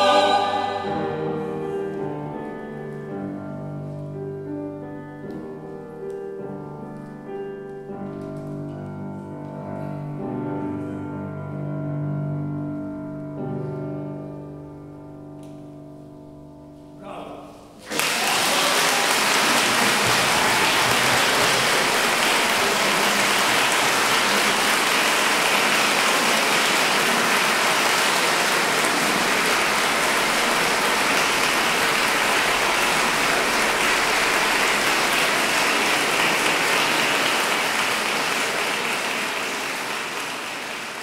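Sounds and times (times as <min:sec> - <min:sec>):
audience applauding: 0:17.8 - 0:41.0.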